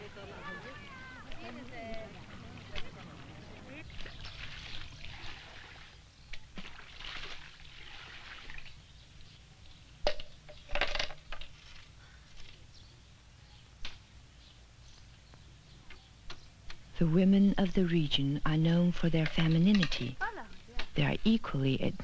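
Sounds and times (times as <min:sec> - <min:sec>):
water splashing and pouring: 0:03.9 - 0:06.0, 0:06.6 - 0:08.8.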